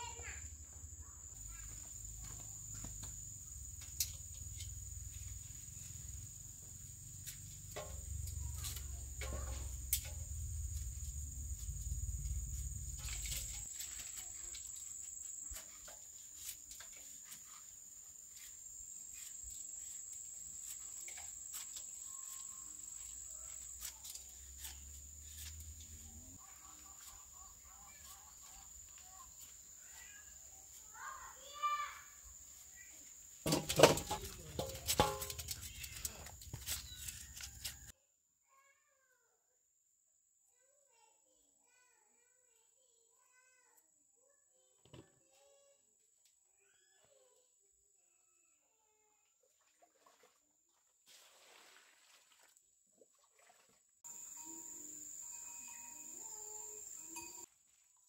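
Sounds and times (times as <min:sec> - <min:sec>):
insects droning: 0:00.0 - 0:37.9, 0:54.1 - 0:57.5.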